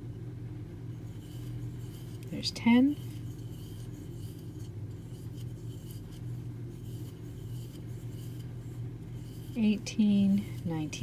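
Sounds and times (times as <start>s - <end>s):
steady low hum: 0.0s - 11.0s
yarn rubbing over crochet hook: 0.9s - 11.0s.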